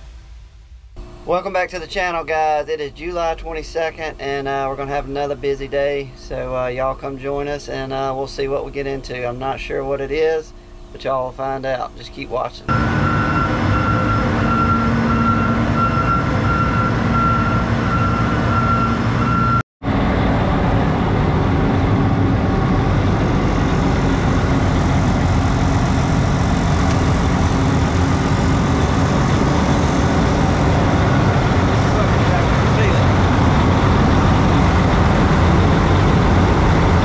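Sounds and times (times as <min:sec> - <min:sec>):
electronic warning beep: 0:12.7 - 0:19.6
diesel engine running: 0:12.7 - 0:37.0.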